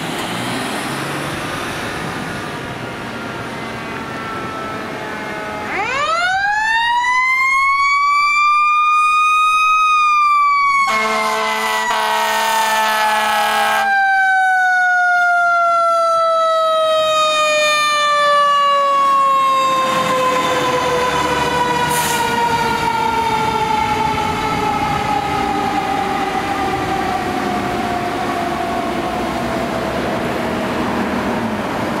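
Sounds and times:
air horn blast: 10.9s - 13.9s.

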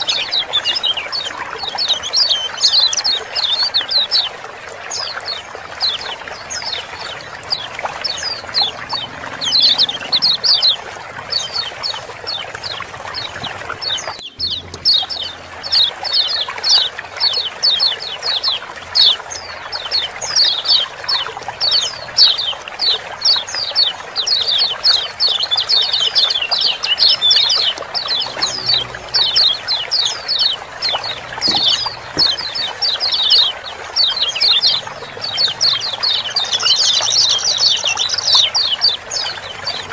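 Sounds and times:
bird chirping chatter: 0.0s - 39.9s
trickle of running water: 0.0s - 39.9s.

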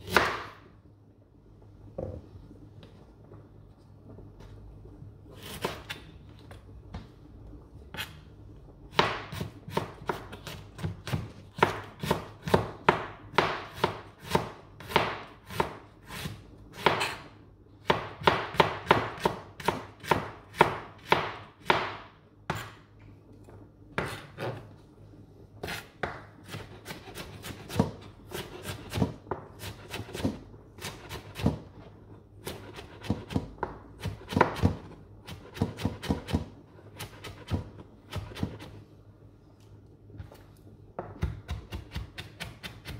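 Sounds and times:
knife chopping on cutting board: 25.6s - 31.7s, 32.4s - 38.7s, 41.0s - 42.9s.

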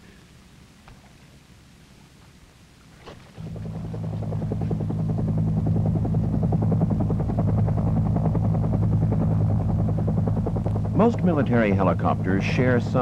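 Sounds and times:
low engine hum: 3.1s - 13.0s
helicopter rotor beating: 3.4s - 13.0s.

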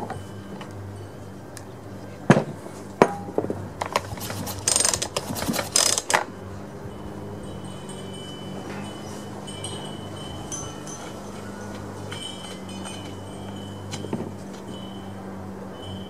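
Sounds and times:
metallic rattling and clinking: 3.9s - 6.2s, 7.6s - 14.8s.

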